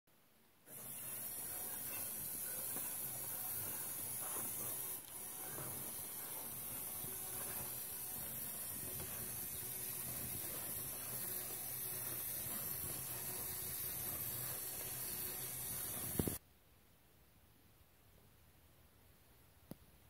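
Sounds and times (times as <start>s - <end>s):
constant hiss: 0.2s - 20.0s
small motor and gears whirring: 0.7s - 16.4s.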